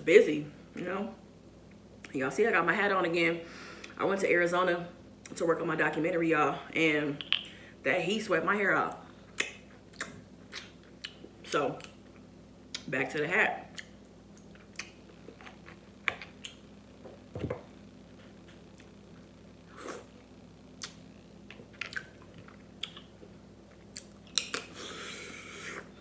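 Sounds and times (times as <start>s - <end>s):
person chewing: 9.4s - 12.9s, 13.7s - 16.6s, 20.8s - 26.0s.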